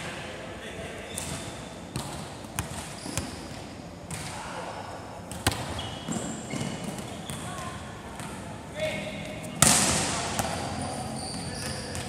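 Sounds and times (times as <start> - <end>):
shoe squeaks on court: 2.9 - 3.4, 5.7 - 7.5, 10.8 - 12.0
loud ball smack: 9.6 - 10.5.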